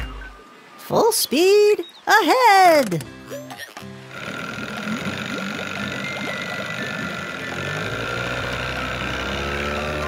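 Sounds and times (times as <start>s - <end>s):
low engine rumble: 4.1s - 10.0s.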